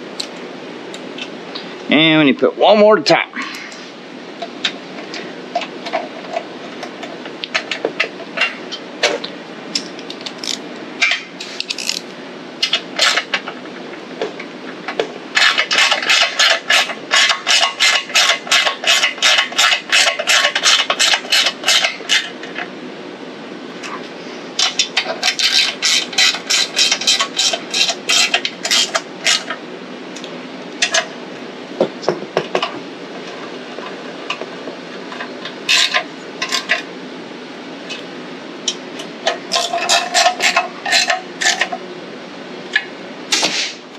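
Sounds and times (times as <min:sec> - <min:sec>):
hand ratchet clicking: 0:10.3 - 0:10.6, 0:11.6 - 0:12.0.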